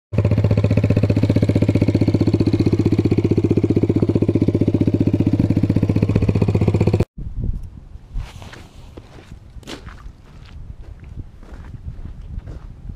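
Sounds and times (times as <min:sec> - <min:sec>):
atv engine running: 0:00.2 - 0:07.0
footsteps: 0:08.2 - 0:12.7.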